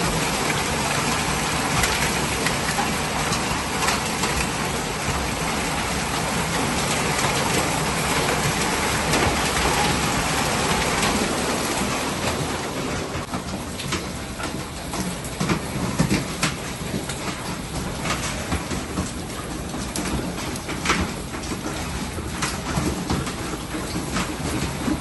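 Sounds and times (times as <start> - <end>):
heavy rain and hail: 0.0 - 25.0.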